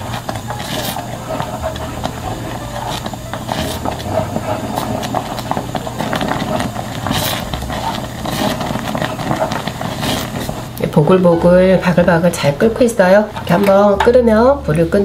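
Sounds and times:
paste bubbling and popping: 0.0s - 11.1s
low steady hum: 0.0s - 15.0s.

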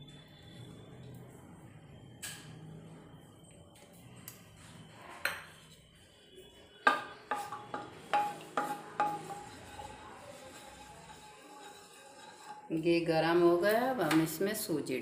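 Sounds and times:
spatula clinking on metal pan: 6.9s - 12.7s.

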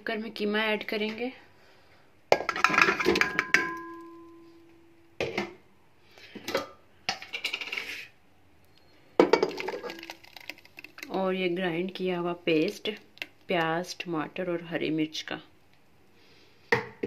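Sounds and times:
metal pot clattering: 2.3s - 4.4s, 9.2s - 11.1s
pot ringing: 3.0s - 4.7s
scrapes in a pot: 7.4s - 8.2s.

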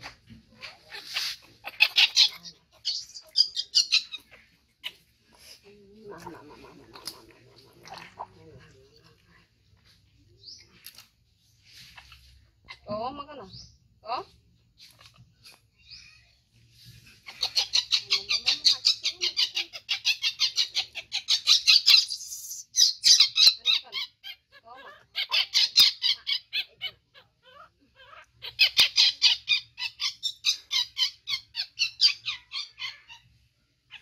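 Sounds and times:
baby monkey squealing: 0.0s - 5.1s, 17.2s - 33.3s.

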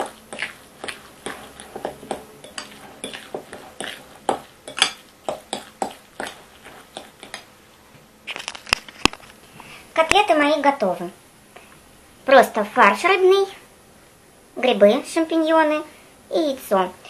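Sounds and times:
fork clinking on glass bowl: 1.2s - 6.3s.

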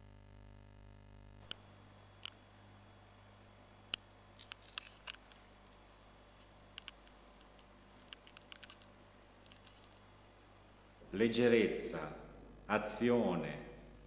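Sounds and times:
steady low hum: 0.0s - 14.0s
small clicks and ticks: 1.4s - 2.4s, 3.9s - 10.0s.

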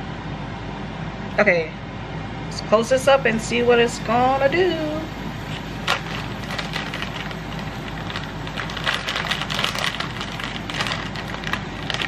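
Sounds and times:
plastic bag crinkling: 5.5s - 12.0s.

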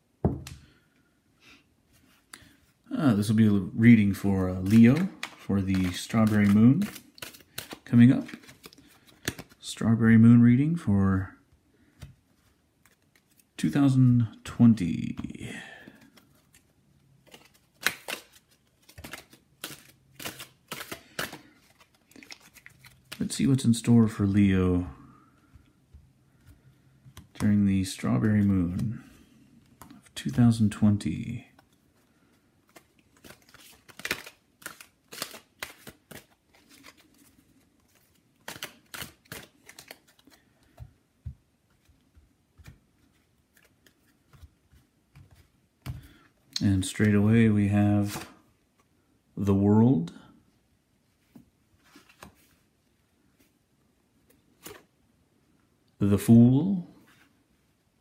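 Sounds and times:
cards being shuffled: 3.3s - 9.7s, 11.9s - 13.6s, 15.0s - 24.2s, 26.4s - 41.0s, 41.6s - 46.2s, 48.0s - 48.9s, 51.2s - 52.7s, 54.2s - 54.9s.

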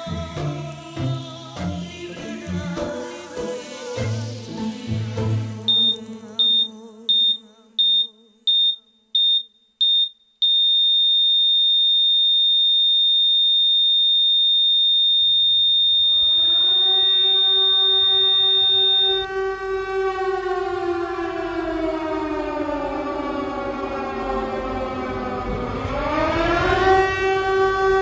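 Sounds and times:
song: 0.0s - 8.3s, 15.8s - 28.0s
flatline tone: 5.6s - 9.2s, 13.2s - 22.0s
electronic monitor beeps: 5.7s - 10.9s, 14.6s - 19.3s
civil defence siren winding up: 15.0s - 28.0s.

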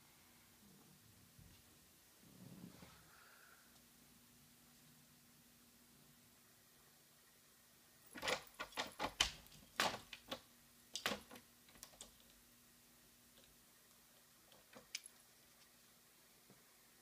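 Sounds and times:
metal door handle rattling and clicking: 8.2s - 10.4s.

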